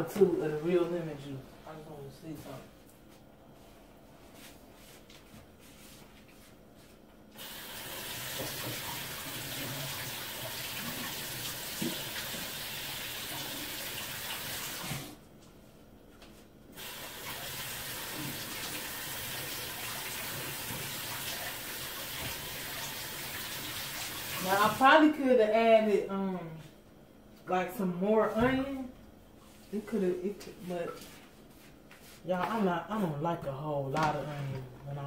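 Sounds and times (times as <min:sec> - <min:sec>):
kitchen faucet running: 0:07.4 - 0:15.2, 0:16.8 - 0:24.9.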